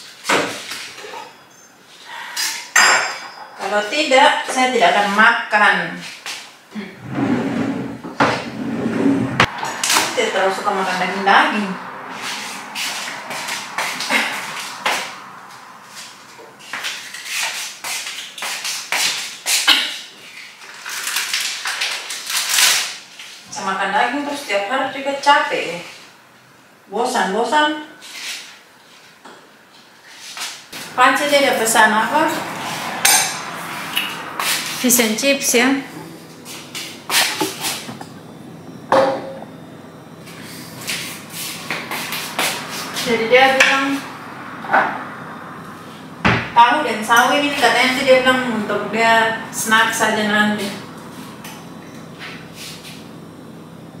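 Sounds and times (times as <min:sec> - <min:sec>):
rustling and scraping: 0:35.9 - 0:38.2
sharp kitchen knocks: 0:38.9 - 0:39.4, 0:46.2 - 0:46.6.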